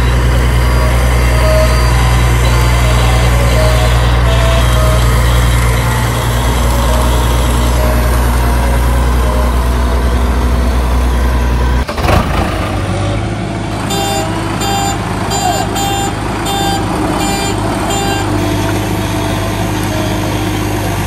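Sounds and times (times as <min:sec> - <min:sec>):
heavy diesel engine running: 0:00.0 - 0:21.0.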